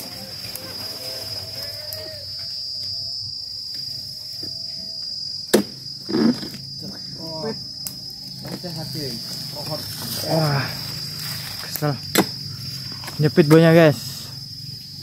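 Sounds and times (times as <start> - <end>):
high-pitched insect drone: 0.0 - 15.0
chisel striking palm frond: 5.5 - 5.8, 12.1 - 12.4.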